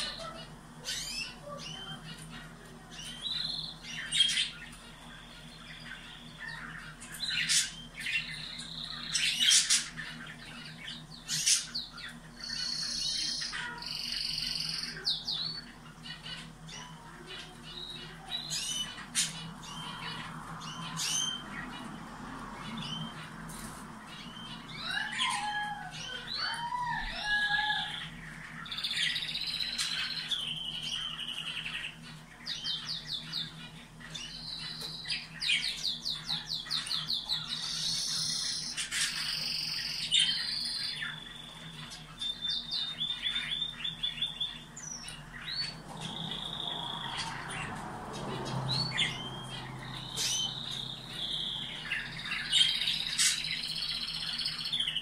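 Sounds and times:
canaries singing: 0:00.0 - 0:55.0.

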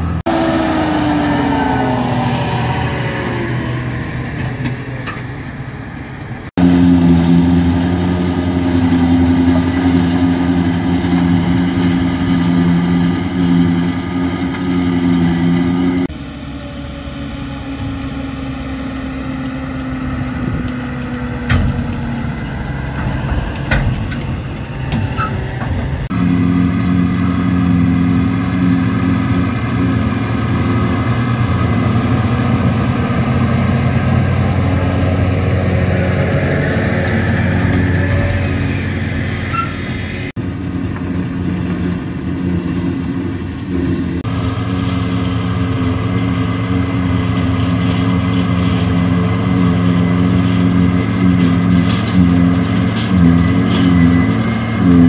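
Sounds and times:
forage harvester working: 0:00.0 - 0:55.0
tractor diesel engines: 0:00.0 - 0:55.0.

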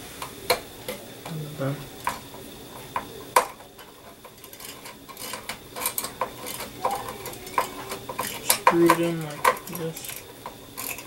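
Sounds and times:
screwdriver clicking on metal screws: 0:03.4 - 0:11.0.

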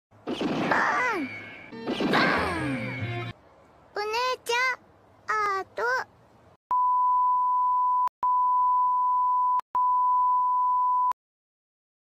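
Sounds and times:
pure high test tone beeps: 0:06.7 - 0:11.2.

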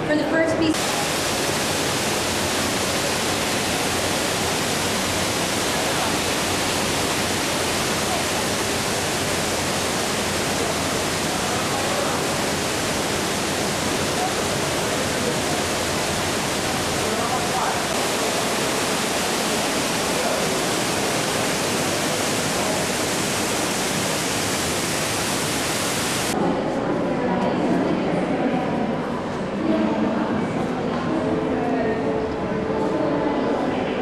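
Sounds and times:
waterfall splashing into pool: 0:00.8 - 0:26.4.

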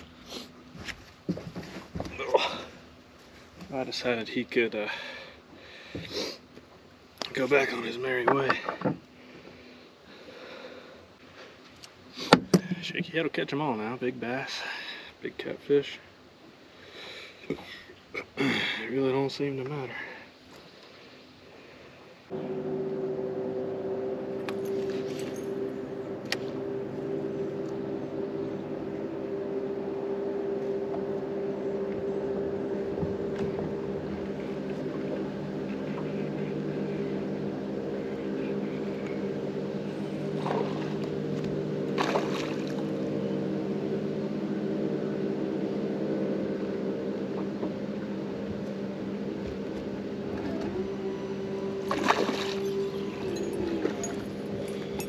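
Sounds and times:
electric motor humming: 0:22.3 - 0:55.0.

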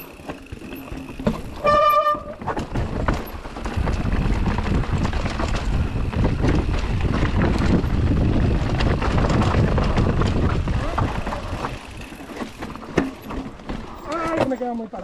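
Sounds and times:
bike rattling: 0:00.0 - 0:15.0
bike tyres on dirt and rocks: 0:00.0 - 0:15.0
wind on microphone: 0:01.6 - 0:12.1.

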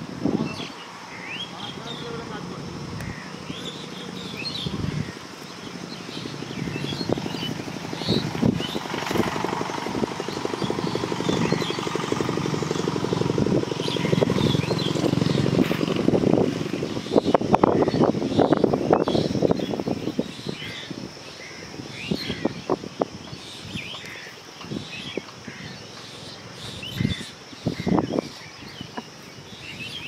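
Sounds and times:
birds chirping: 0:00.0 - 0:30.0
engine puttering: 0:01.2 - 0:19.7.

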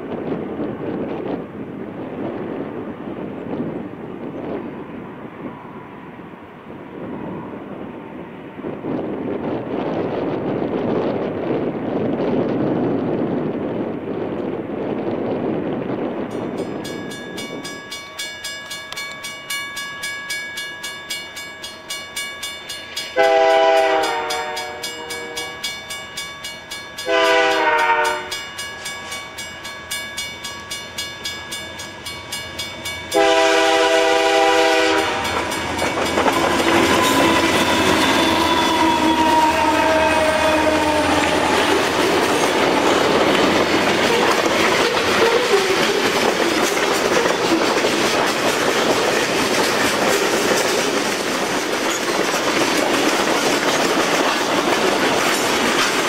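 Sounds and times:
train wheels clacking on rails: 0:16.3 - 0:56.0
locomotive air horn blasts: 0:23.2 - 0:25.7, 0:27.0 - 0:28.4, 0:33.1 - 0:35.5, 0:36.4 - 0:41.9, 0:44.0 - 0:46.0.

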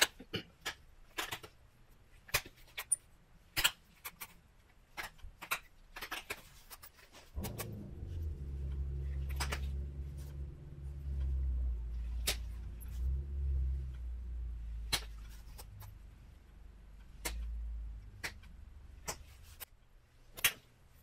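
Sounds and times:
low steady hum: 0:07.2 - 0:21.0.

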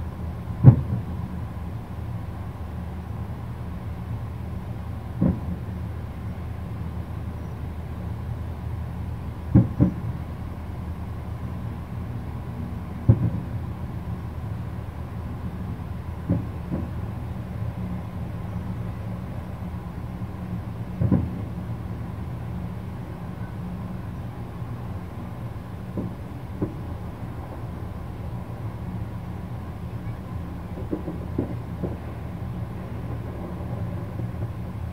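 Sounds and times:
steady low rumble: 0:00.0 - 0:34.9
distant fireworks booms: 0:00.6 - 0:01.2, 0:05.2 - 0:05.7, 0:09.5 - 0:10.1, 0:13.0 - 0:13.6, 0:16.1 - 0:17.1, 0:20.4 - 0:21.7, 0:25.1 - 0:29.0, 0:30.0 - 0:34.9.

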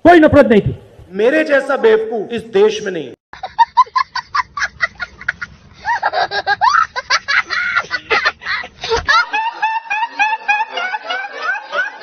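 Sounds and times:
young boy laughing: 0:03.4 - 0:12.0.

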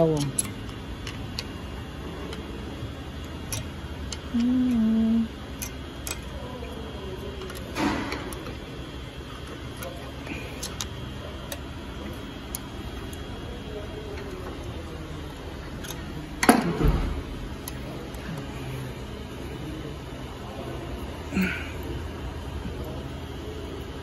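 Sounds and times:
short low hum-like tone: 0:00.0 - 0:09.2
workshop hum: 0:00.0 - 0:24.0.

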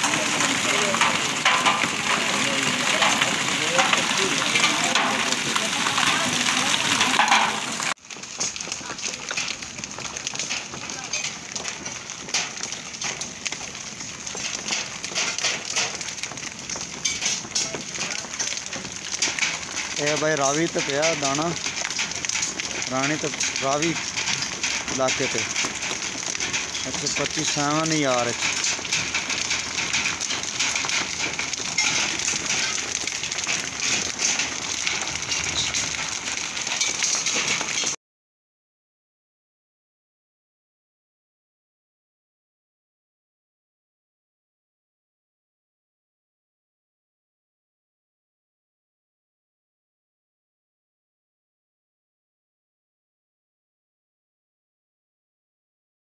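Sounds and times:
hailstones falling on paving: 0:00.0 - 0:38.0.

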